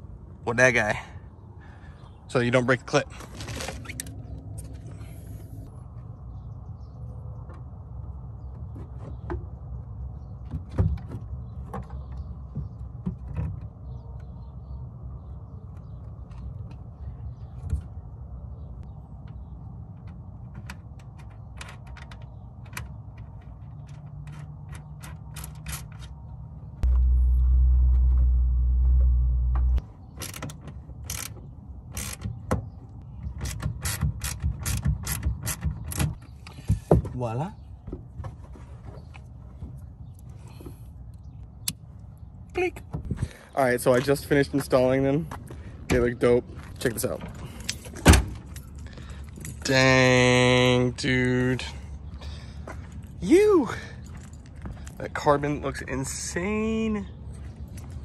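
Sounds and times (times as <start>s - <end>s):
steady low rumble: 26.2s - 30.4s
loud very low rumble: 26.8s - 29.8s.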